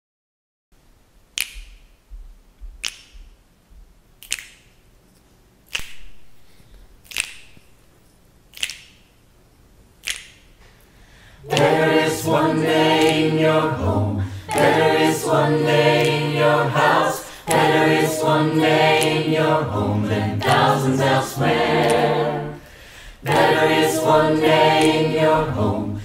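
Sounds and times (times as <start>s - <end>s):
finger snaps: 1.3s - 2.0s, 2.7s - 3.4s, 4.2s - 4.9s, 5.7s - 7.8s, 8.5s - 9.2s, 10.0s - 10.9s, 11.5s - 11.8s, 13.0s - 13.4s, 16.0s - 18.3s
choir singing a cappella: 11.4s - 26.0s.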